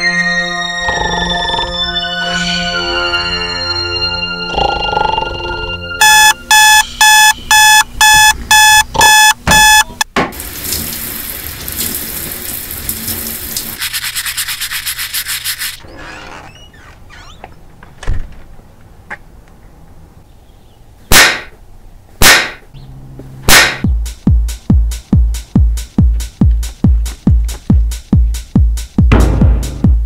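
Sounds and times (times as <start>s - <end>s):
alarm clock beeping: 6.0s - 10.0s
shower spray hissing: 10.4s - 15.8s.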